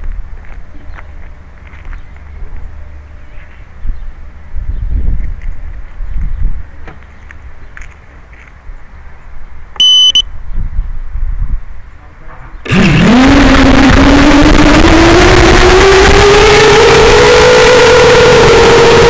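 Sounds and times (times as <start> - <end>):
short electronic beep: 9.8 - 10.3
drone motors whining: 12.6 - 19.0.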